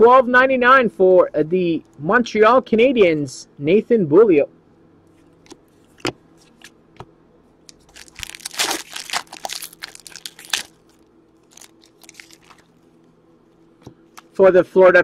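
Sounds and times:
trading cards being shuffled: 5.2 - 6.8.

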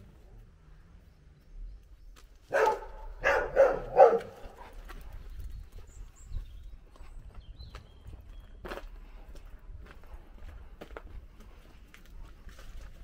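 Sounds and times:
dog barking: 2.5 - 4.8.

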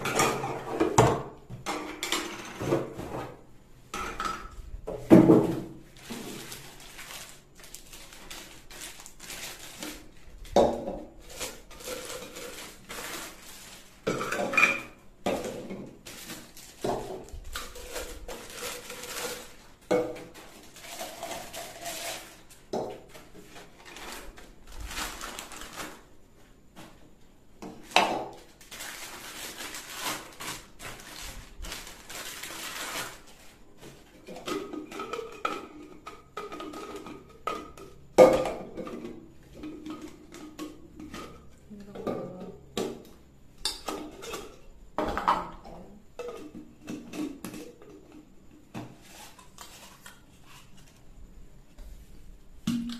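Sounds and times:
plastic wrapping crinkling: 5.8 - 14.8, 15.9 - 26.2, 27.8 - 33.9.

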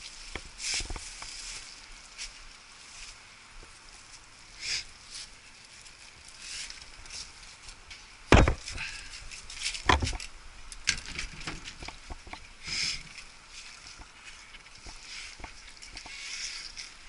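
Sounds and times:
loud knocks: 8.3 - 8.7.

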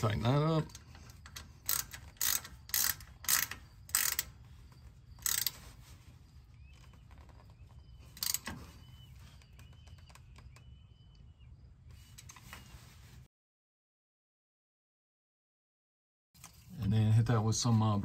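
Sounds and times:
ratchet wrench clicking: 0.7 - 4.4, 5.1 - 5.6, 8.2 - 8.5.

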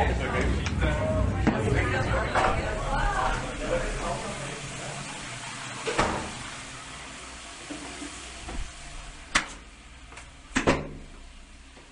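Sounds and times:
steady hiss: 2.6 - 11.9.

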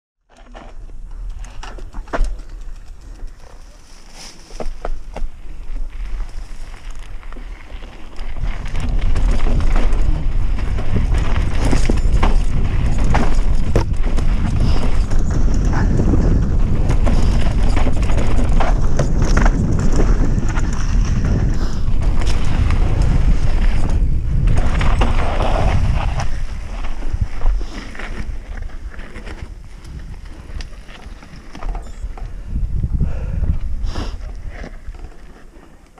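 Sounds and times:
bike rattling over rough ground: 0.3 - 35.9
wind buffeting microphone: 8.0 - 35.1.

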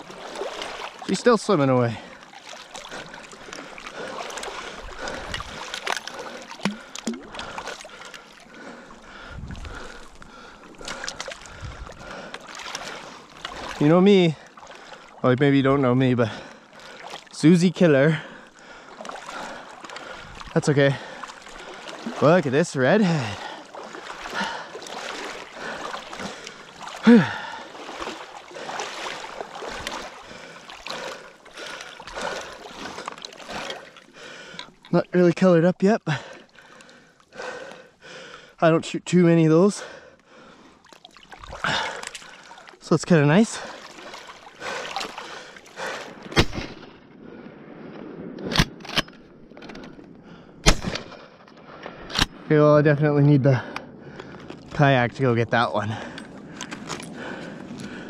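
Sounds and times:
small water splashes: 0.0 - 38.6, 39.8 - 47.0
wading through water: 0.0 - 58.0.

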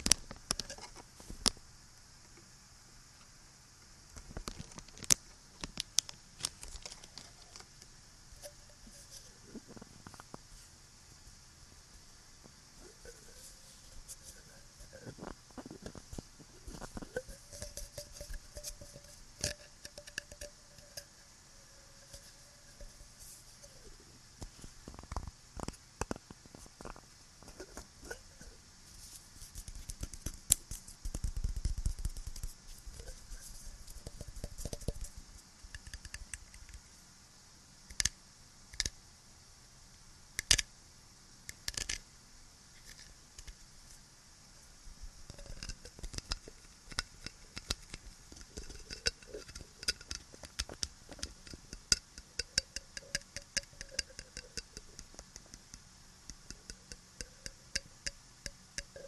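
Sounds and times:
steady background hiss: 0.0 - 59.0
scratching on small objects: 12.4 - 36.8, 45.2 - 59.0.

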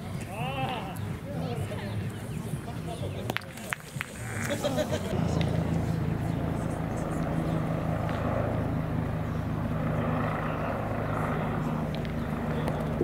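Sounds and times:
low engine-like hum: 4.7 - 13.0.

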